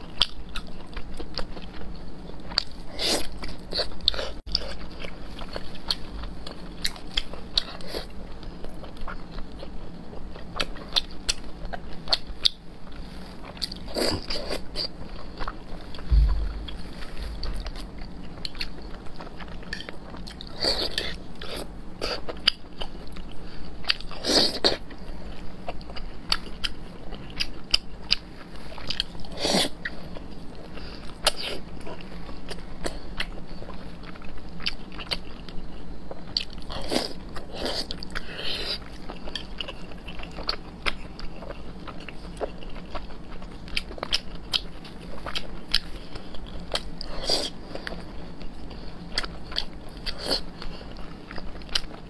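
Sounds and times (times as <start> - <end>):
low thud: 16.1 - 18.0.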